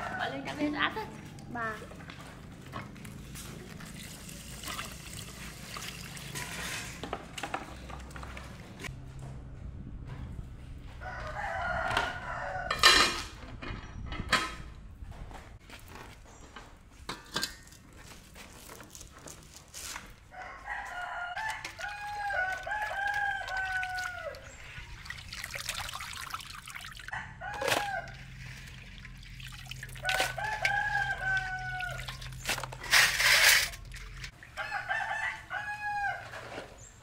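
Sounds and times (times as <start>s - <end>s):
roosters crowing: 0.0s - 0.7s, 10.9s - 13.2s, 20.3s - 25.0s, 27.0s - 28.6s, 29.9s - 33.9s, 34.5s - 36.8s.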